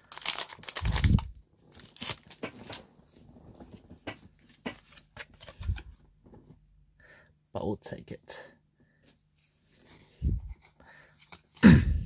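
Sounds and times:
foil pack and cards rustling: 0.0s - 6.0s.

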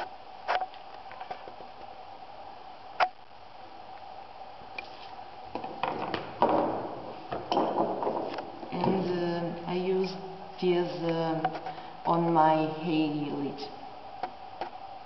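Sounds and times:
steady background tone: 0.0s - 15.0s.

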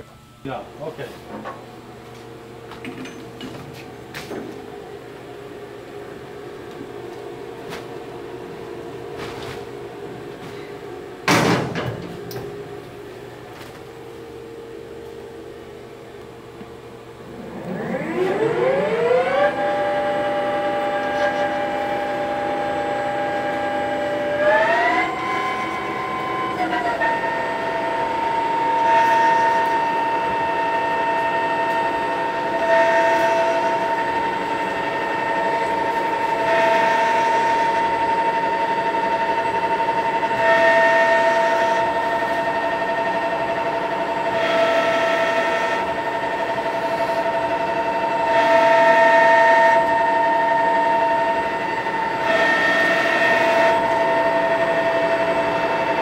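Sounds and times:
lathe whining: 14.7s - 56.0s
lathe threading cut noise: 17.3s - 56.0s.

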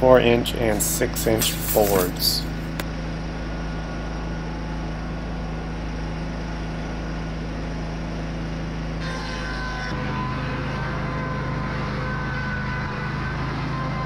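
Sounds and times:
board edger engine hum: 0.0s - 2.8s
high machine whine: 0.0s - 14.0s.

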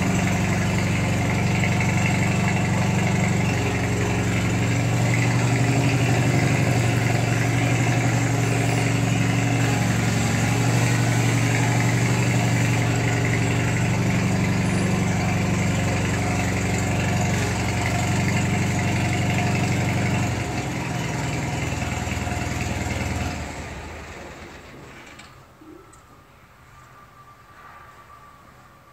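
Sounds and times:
garden tractor engine running: 0.0s - 25.4s.

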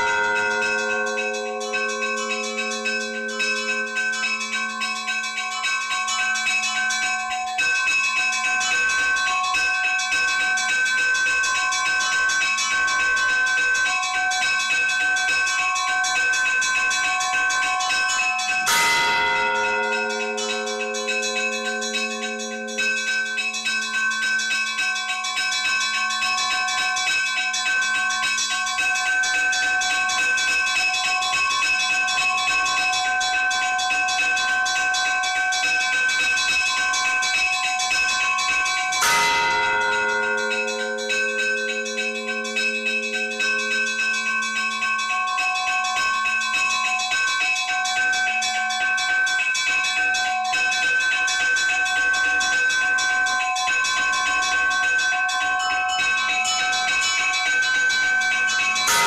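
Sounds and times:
church bells chiming: 0.0s - 10.4s, 16.8s - 28.8s, 30.8s - 47.7s, 55.3s - 59.0s.

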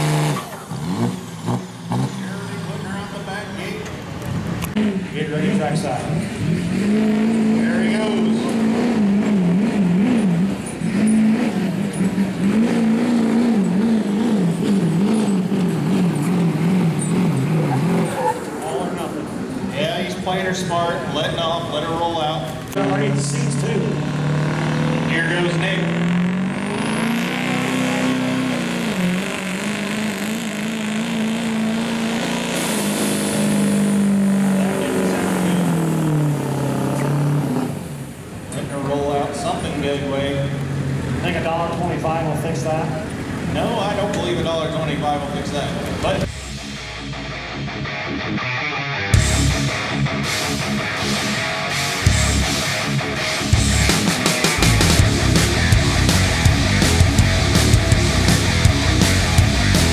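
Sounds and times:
diesel pickup engine under load: 0.0s - 47.3s, 49.1s - 59.9s
diesel engine running under load: 20.3s - 38.5s, 52.1s - 59.9s.

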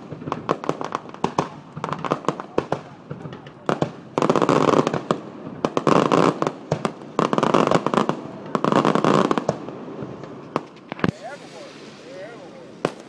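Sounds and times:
fireworks bangs: 0.0s - 13.0s
fireworks crackling: 0.0s - 13.0s.

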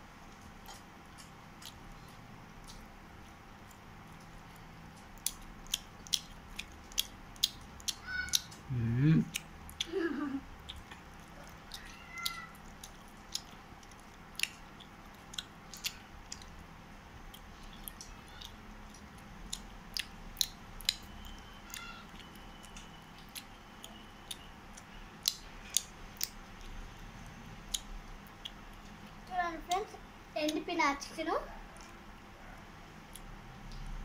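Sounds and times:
child chewing food: 0.1s - 34.0s
lip smacks: 5.0s - 8.6s, 10.6s - 16.6s, 17.3s - 26.8s.

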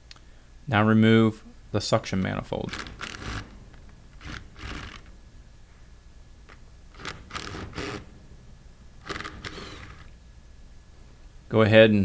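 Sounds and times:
impact gun bursts: 2.7s - 5.2s, 6.5s - 8.4s, 9.0s - 10.1s.

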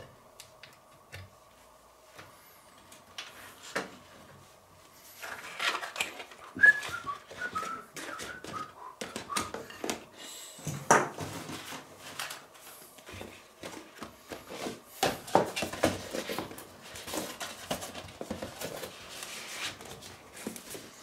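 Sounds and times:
cardboard boxes knocking and rustling: 6.6s - 10.0s, 10.7s - 12.2s, 13.0s - 21.0s.

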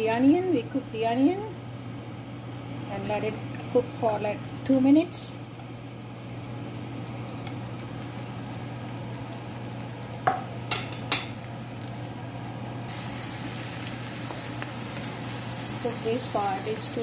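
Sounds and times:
onion sizzling in butter: 12.9s - 17.0s.

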